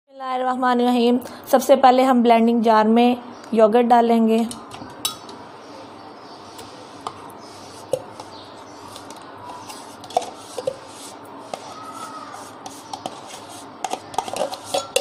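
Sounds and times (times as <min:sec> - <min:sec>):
spoon scraping yogurt from tub: 0:06.4 - 0:15.0.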